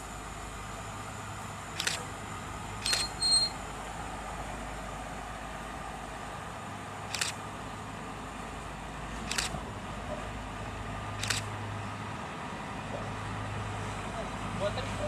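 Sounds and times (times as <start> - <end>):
distant locomotive hum: 0.0 - 15.0
sharp light clicks: 1.8 - 2.0, 2.8 - 3.2, 7.1 - 7.4, 9.3 - 9.5, 11.2 - 11.5
short high beep: 2.8 - 3.6.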